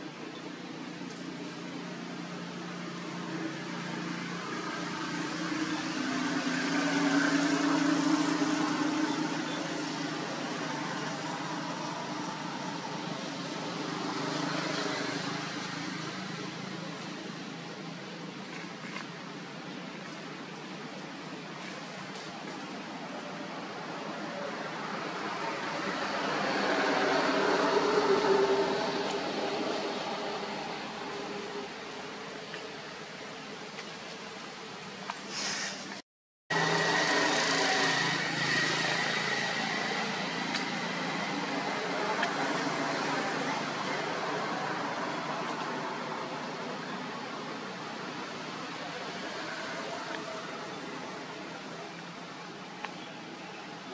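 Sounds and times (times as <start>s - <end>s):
vehicle engine passing by: 24.9s - 31.8s, 36.5s - 46.6s.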